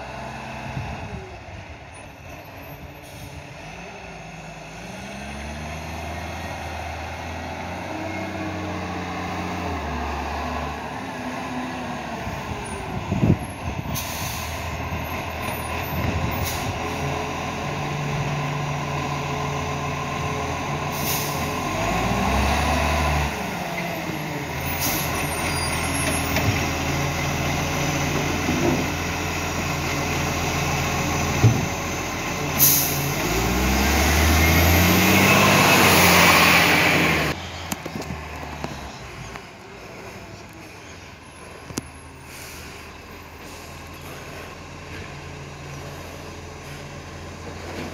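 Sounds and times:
garbage truck diesel engine revving: 3.4 - 47.9
air brakes hissing: 13.9 - 14.8, 16.4 - 16.8, 20.9 - 21.5, 24.6 - 25.8, 32.6 - 33.2, 42.0 - 44.5.

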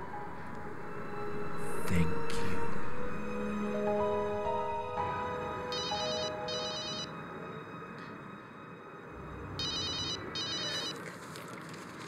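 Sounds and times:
telephone ringing with electronic trill: 5.8 - 7.1, 9.6 - 11.0.

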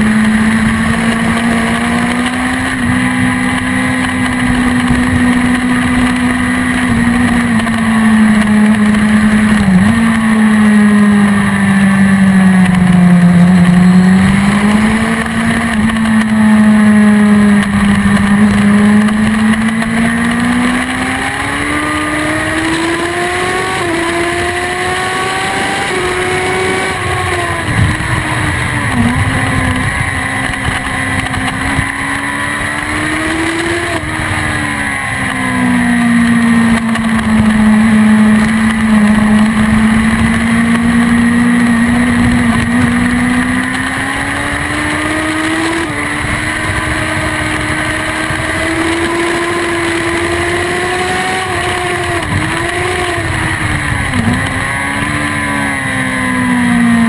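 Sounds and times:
motorcycle engine at high revs: 0.0 - 57.0
wind rush over microphone: 24.8 - 34.8, 51.0 - 55.8.

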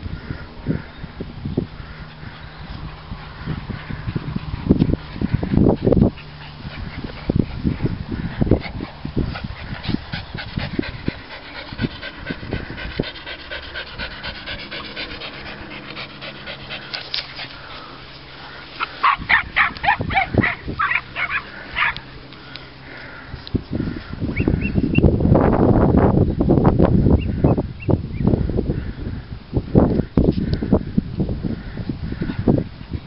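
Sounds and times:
dogs barking: 18.6 - 22.1.

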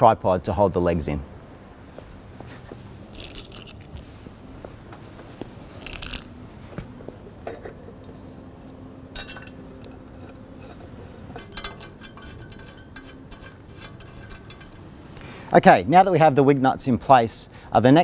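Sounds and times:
metal wing nuts clinking: 9.1 - 15.1.

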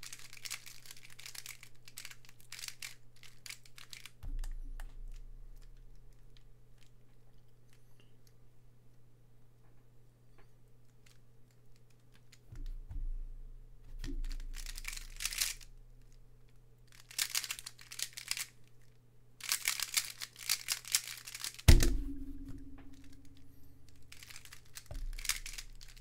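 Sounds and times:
plastic puzzle clicking and clattering: 0.0 - 7.0, 10.8 - 12.9, 13.9 - 15.7, 16.5 - 21.7, 22.9 - 26.0
hands slapping timer pad: 19.4 - 26.0
soft thumps on timer: 21.7 - 23.8.

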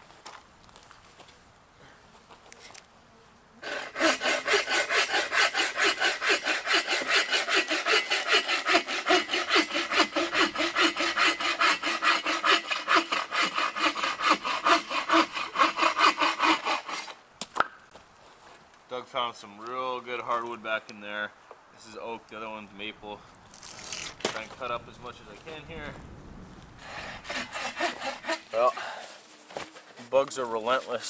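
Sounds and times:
hand saw cutting log: 3.6 - 17.2, 26.8 - 29.2.

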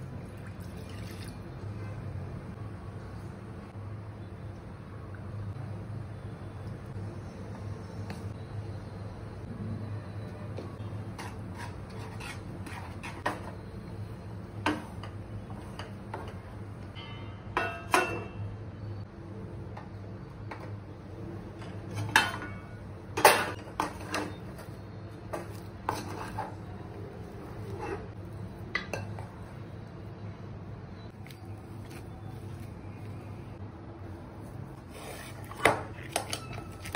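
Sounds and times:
metal spatula scraping steel pan: 11.2 - 13.5.

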